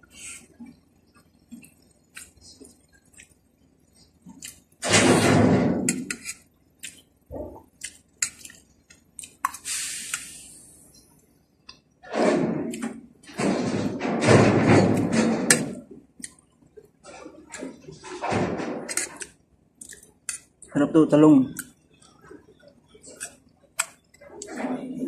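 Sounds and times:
hiss: 0:00.1 - 0:00.5, 0:09.6 - 0:10.9
chewing and wet mouth sounds: 0:00.4 - 0:04.7, 0:06.2 - 0:10.3, 0:18.9 - 0:20.8, 0:21.5 - 0:24.6
metal spoon scraping plate: 0:05.9 - 0:06.4
loud breathy noise: 0:09.6 - 0:10.9.

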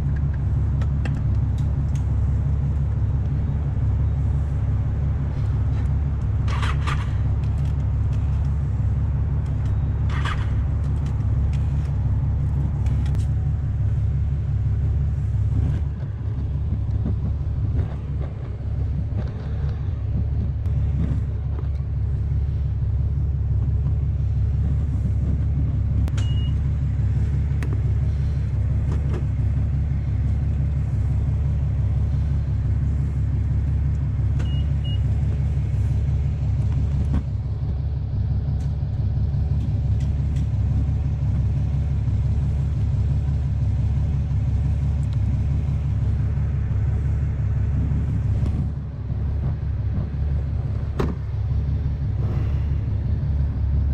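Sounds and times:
motorcycle engine rumbling: 0:00.0 - 0:53.9
short high beeps: 0:26.2 - 0:26.6.

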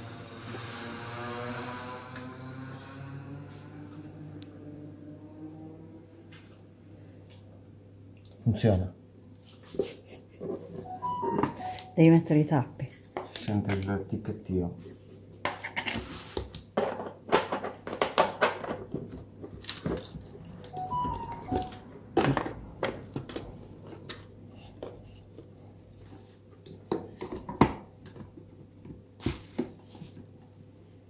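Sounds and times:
bubble wrap crinkling: 0:19.6 - 0:20.7.

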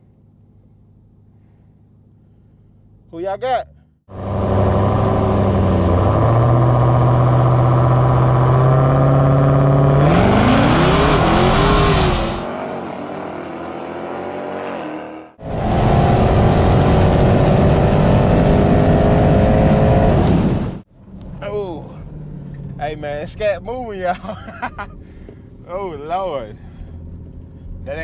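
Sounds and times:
car engine revving: 0:03.7 - 0:23.8
engine pulling at full throttle: 0:04.1 - 0:22.9.

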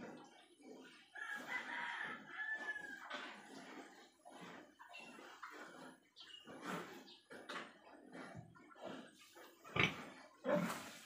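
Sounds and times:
faint rooster crowing: 0:01.2 - 0:03.2.

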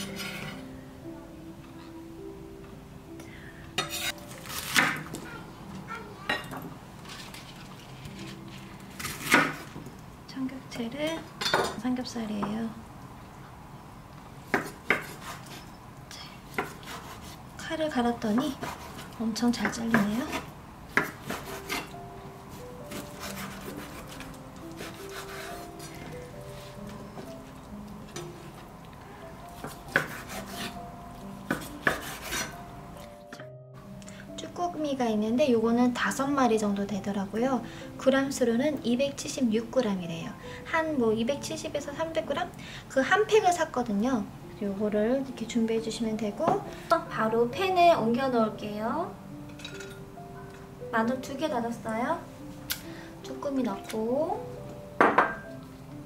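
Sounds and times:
knife slicing vegetable stems: 0:03.9 - 0:05.0, 0:14.5 - 0:15.7, 0:16.5 - 0:17.4, 0:18.6 - 0:22.0, 0:22.9 - 0:26.0, 0:29.6 - 0:30.8, 0:31.5 - 0:32.6
knife slicing through raw meat: 0:22.9 - 0:25.9, 0:29.9 - 0:30.8, 0:31.5 - 0:32.6.

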